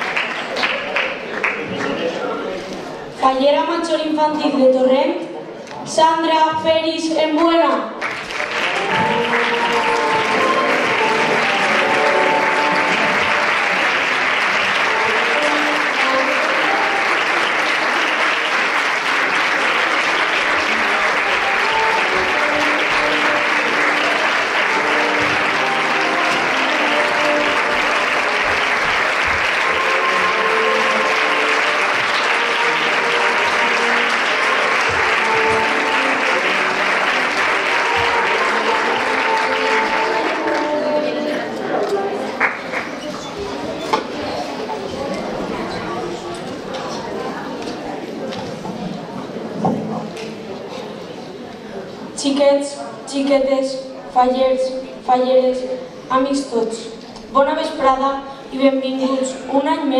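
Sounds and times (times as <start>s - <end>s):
audience applauding: 0.0s - 2.6s, 8.0s - 43.7s
music playing: 8.1s - 43.0s.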